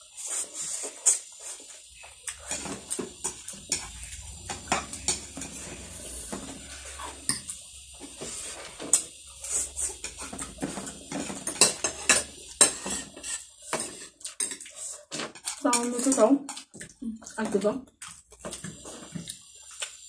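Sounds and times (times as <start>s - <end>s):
cutlery clinking on plates: 10.0s - 16.7s.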